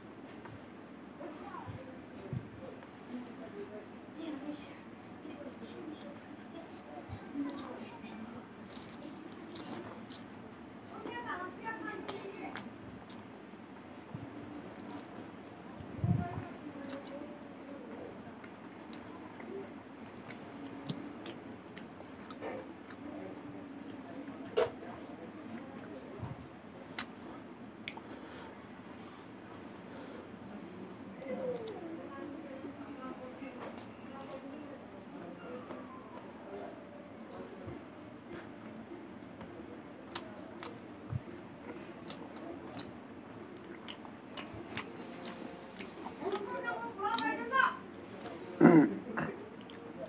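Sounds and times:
man chewing food: 5.8s - 11.3s, 12.1s - 17.2s, 17.9s - 31.8s, 37.2s - 50.0s.

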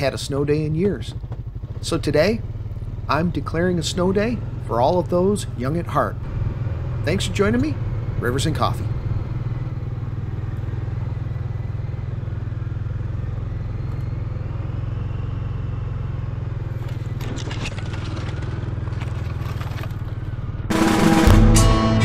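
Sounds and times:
acoustic guitar music: 20.7s - 22.0s.

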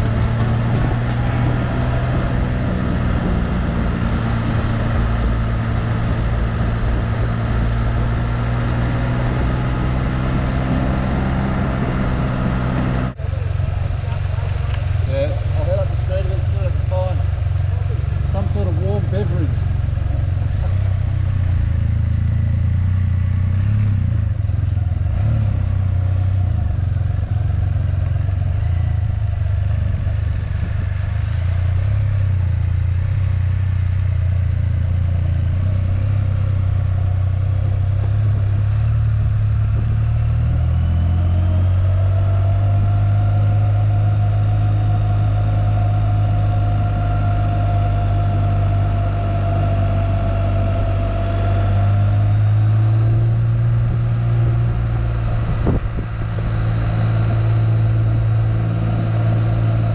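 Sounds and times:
high whine: 0.0s - 8.4s, 41.1s - 59.9s
motorcycle engine low hum: 0.0s - 59.9s.

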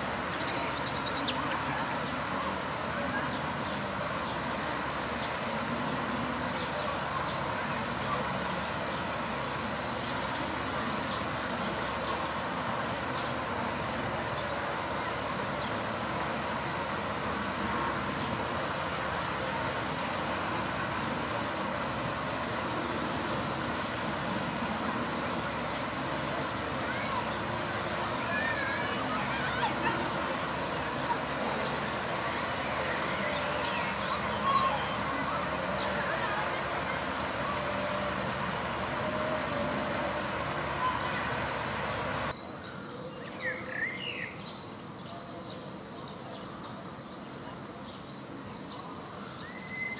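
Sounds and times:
distant city traffic: 0.0s - 4.7s, 5.4s - 42.4s
small birds chirping: 0.2s - 2.2s.

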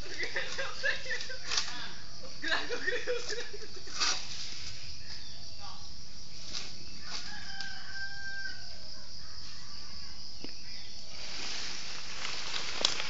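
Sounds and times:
high-pitched hiss: 0.0s - 13.0s
rooster crowing: 7.0s - 10.1s.

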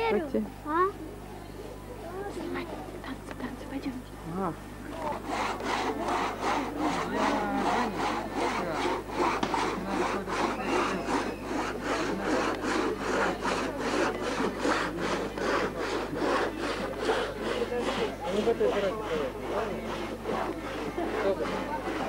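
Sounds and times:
faint voices: 0.0s - 22.0s
crosscut saw sawing log: 4.9s - 22.0s.

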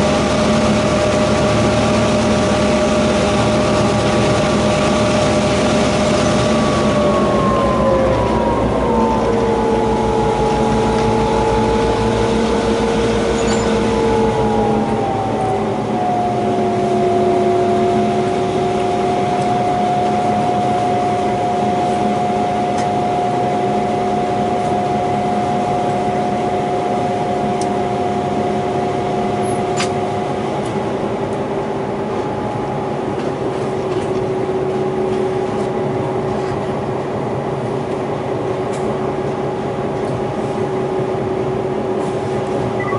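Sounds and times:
diesel locomotive engine droning: 0.0s - 42.9s.

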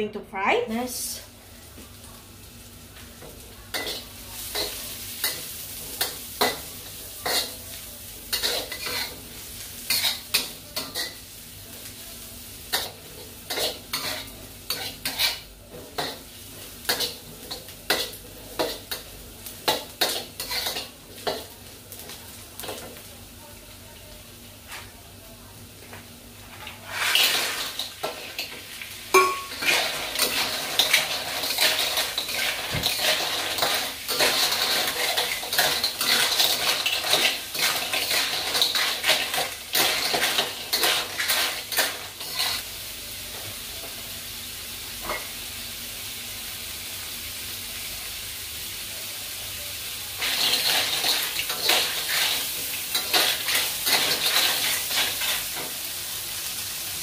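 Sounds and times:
frying sizzle: 0.6s - 57.0s
spatula scraping a wok: 8.3s - 11.2s, 12.8s - 16.2s, 19.7s - 21.5s, 26.5s - 28.6s, 29.5s - 42.6s, 50.2s - 55.6s
shells clattering in a wok: 29.2s - 42.6s, 50.2s - 55.7s.

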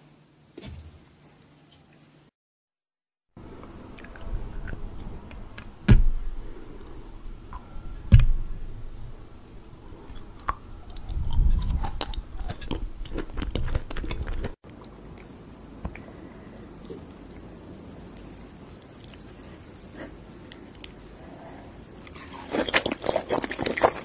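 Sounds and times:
chewing with crisp clicks: 9.6s - 21.2s.

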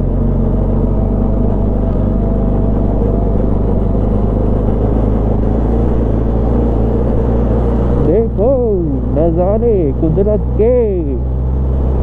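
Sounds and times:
rumble of tyres on gravel: 0.0s - 10.8s
motorcycle engine running: 0.0s - 12.0s.

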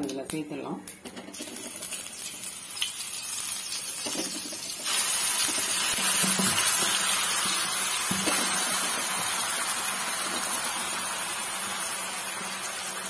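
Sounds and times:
paste sizzling in hot oil: 1.3s - 13.0s.

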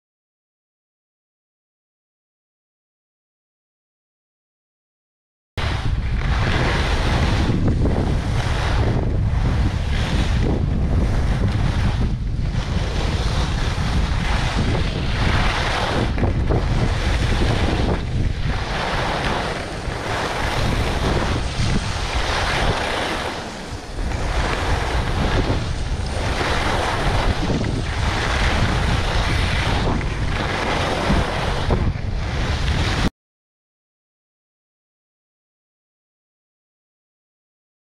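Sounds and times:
skis scraping over hard snow: 5.6s - 33.1s
wind buffeting microphone: 5.6s - 33.1s.

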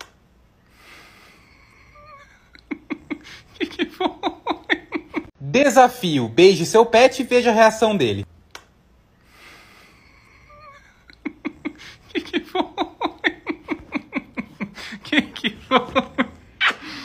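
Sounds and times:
woman laughing: 2.0s - 5.3s, 10.5s - 17.0s.

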